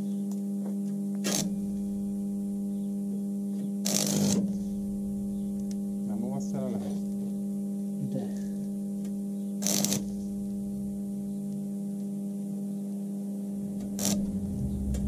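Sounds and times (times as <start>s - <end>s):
welder humming: 0.0s - 15.0s
welding arc burst: 1.2s - 1.6s, 3.8s - 4.5s, 9.6s - 10.4s, 13.8s - 15.0s.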